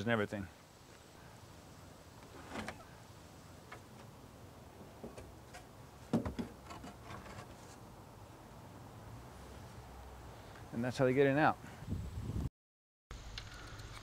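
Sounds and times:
wooden hatch knocks and clicks: 0:04.9 - 0:07.0.

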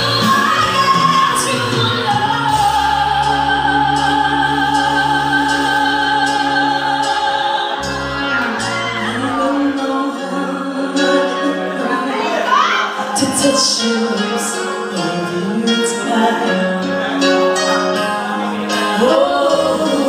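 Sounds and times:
live rock band playing: 0:00.0 - 0:20.0
woman singing: 0:00.0 - 0:20.0.

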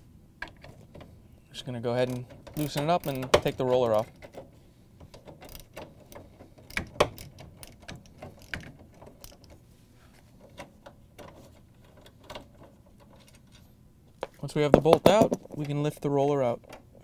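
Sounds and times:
hand ratchet clicking: 0:02.0 - 0:04.4, 0:05.1 - 0:09.5.

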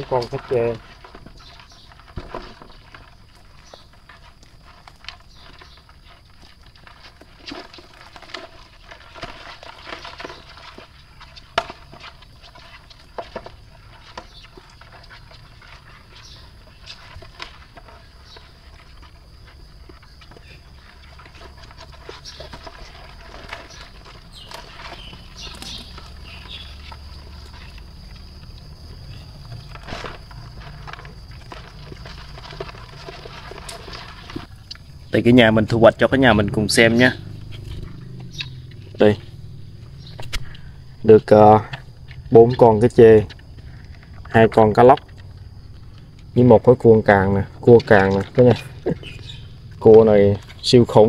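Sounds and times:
fish trap shaken in plastic tub: 0:00.0 - 0:19.3, 0:29.5 - 0:34.5.

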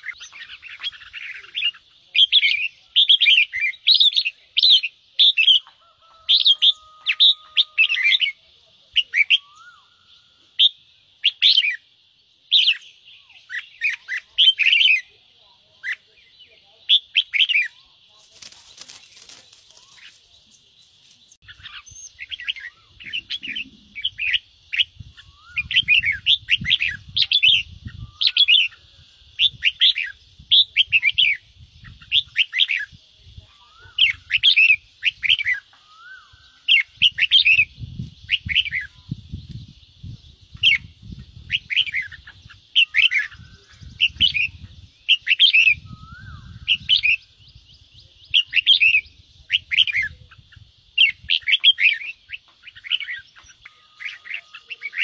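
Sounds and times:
steady high hiss: 0:06.8 - 0:55.0
bird harsh calls: 0:40.6 - 0:47.4.

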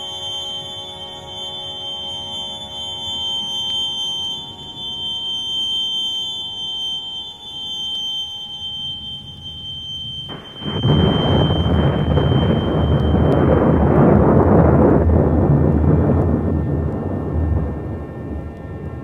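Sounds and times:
steady high whine: 0:00.0 - 0:19.0
low rumbling noise: 0:09.2 - 0:19.0
rushing rumbling wash of noise: 0:10.3 - 0:19.0.

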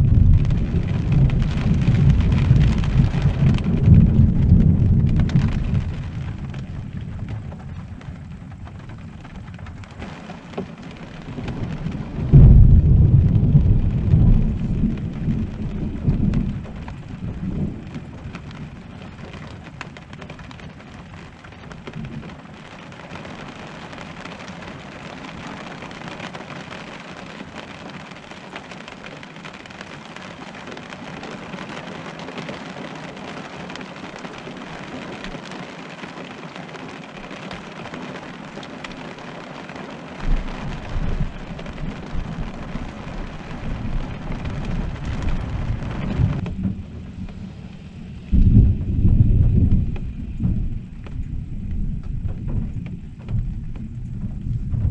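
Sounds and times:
thunder rumbling: 0:00.0 - 0:25.1, 0:37.1 - 0:54.9
rain on a roof: 0:00.0 - 0:54.9.

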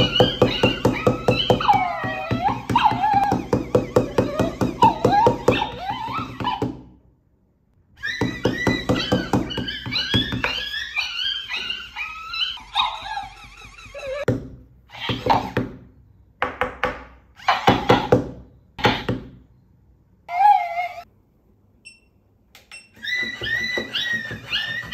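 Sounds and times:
toy dog barks: 0:00.0 - 0:06.8, 0:08.0 - 0:14.3
toy dog yelping: 0:00.0 - 0:06.8, 0:08.0 - 0:14.3, 0:14.9 - 0:15.6, 0:17.4 - 0:18.2, 0:20.3 - 0:21.1, 0:23.0 - 0:24.9.

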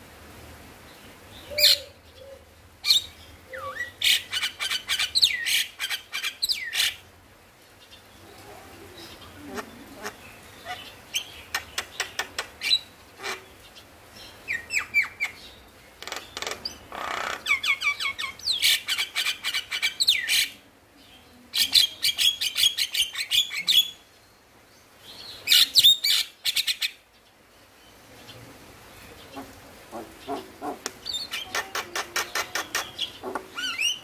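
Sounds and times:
myna chattering chirps and clicks: 0:11.2 - 0:13.4, 0:16.0 - 0:17.7, 0:29.4 - 0:34.0.

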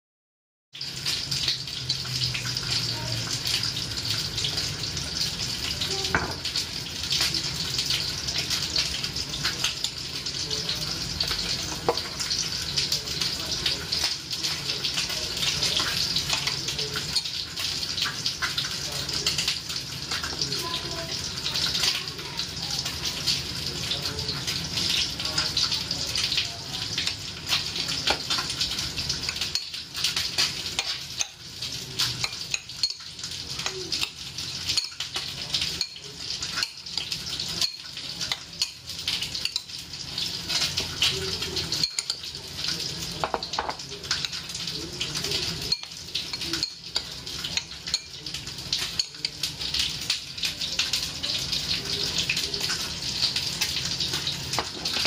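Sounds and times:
spoon clinking and scraping bowl: 0:15.0 - 0:18.7, 0:27.0 - 0:50.2.

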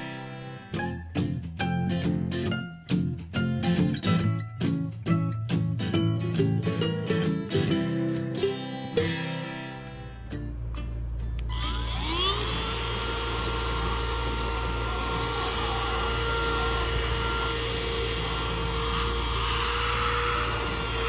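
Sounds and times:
handheld vacuum cleaner whine: 0:11.5 - 0:21.0.

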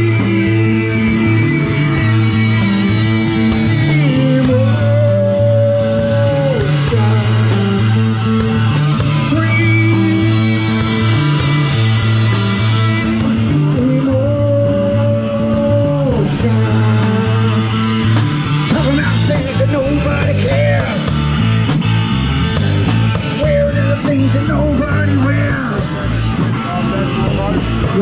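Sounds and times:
person singing: 0:00.0 - 0:21.1, 0:23.1 - 0:26.2
drum kit with cymbals: 0:00.0 - 0:28.0
electric guitar: 0:00.0 - 0:28.0.

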